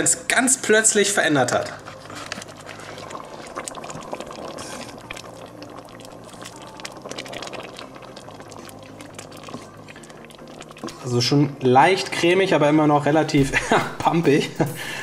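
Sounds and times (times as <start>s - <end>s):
wooden spoon stirring stew: 1.4s - 11.2s
stew bubbles popping: 2.0s - 11.2s.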